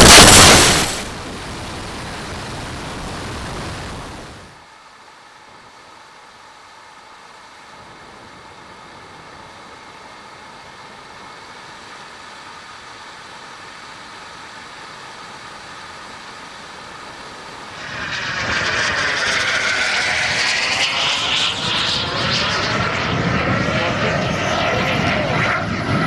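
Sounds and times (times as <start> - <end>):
model aircraft engine and airflow: 7.7 - 26.0
model jet whine flying past: 17.3 - 26.0.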